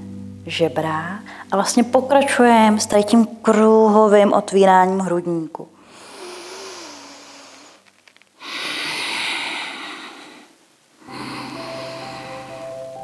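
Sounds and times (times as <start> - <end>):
soft music tones: 0.0 - 5.2, 11.0 - 13.0
woman breathing deeply: 5.8 - 13.0.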